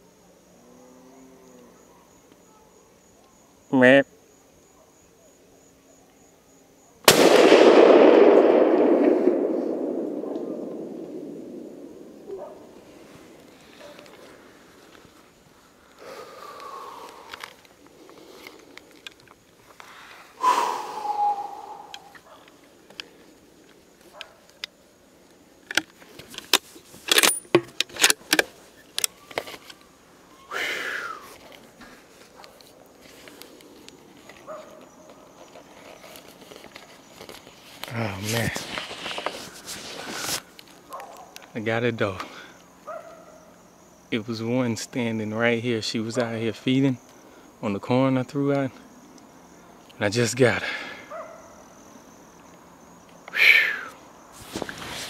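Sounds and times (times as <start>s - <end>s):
rifle shot with long echo: 7.1s - 12.8s
hissing rush falling in pitch: 20.1s - 22.2s, 53.3s - 54.0s
gear handling clicks and rattles: 25.6s - 29.8s.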